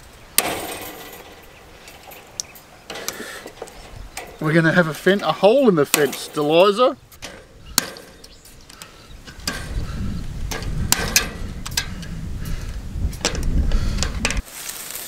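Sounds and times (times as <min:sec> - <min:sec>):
wire cutters snipping mesh: 0:00.4 - 0:09.8, 0:10.4 - 0:12.1.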